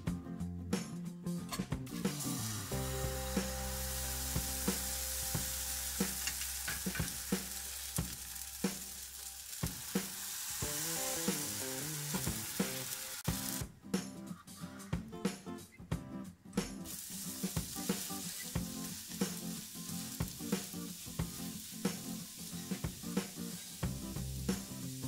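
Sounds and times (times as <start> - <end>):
background music with a beat: 0.0 - 25.0
batter sizzling in a pan: 1.9 - 13.6, 16.9 - 25.0.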